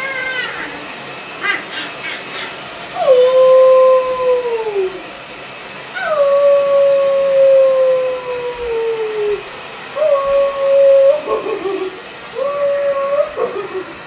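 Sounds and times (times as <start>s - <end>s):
dog howling: 0.0s - 0.9s, 2.9s - 5.1s, 5.9s - 14.0s.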